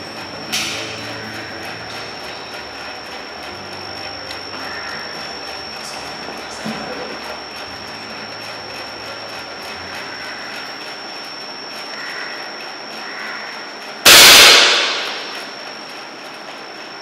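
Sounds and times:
thin high whine: 0:00.0 - 0:16.1
air rifle shot: 0:14.1 - 0:15.5.

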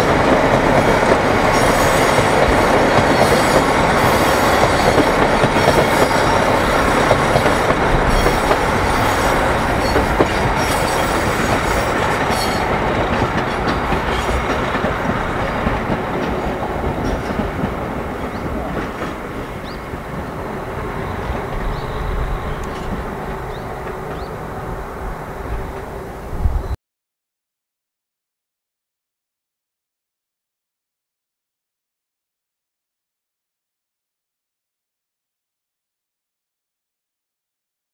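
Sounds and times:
diesel train rumble: 0:00.0 - 0:26.8
wheels clattering over rail joints: 0:00.2 - 0:24.5.

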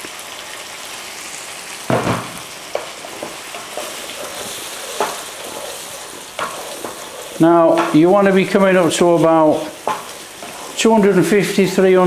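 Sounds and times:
paste sizzling in a frying pan: 0:00.0 - 0:12.0
spatula scraping and tapping pan: 0:01.9 - 0:11.2
spatula knocking against pan: 0:07.7 - 0:08.0, 0:09.5 - 0:10.1.

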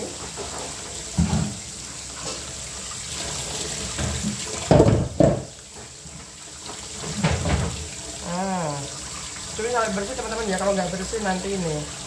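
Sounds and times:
tap running into steel sink: 0:00.0 - 0:02.4, 0:03.8 - 0:06.0, 0:06.6 - 0:08.0.

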